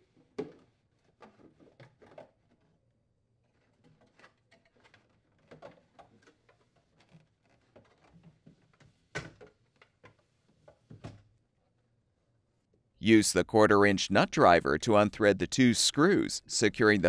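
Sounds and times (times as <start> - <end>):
plastic scraping and rattling: 0.2 - 11.3.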